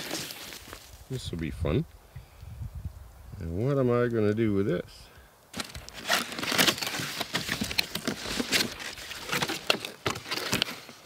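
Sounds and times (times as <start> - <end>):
cardboard and styrofoam rustling: 0.0 - 1.0, 5.5 - 11.0.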